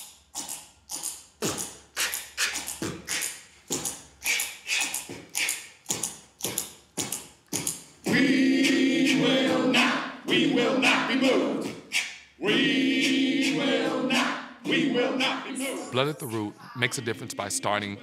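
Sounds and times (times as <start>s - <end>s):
rhythmic percussion hits: 1.4s - 18.0s
a cappella group singing: 8.0s - 18.0s.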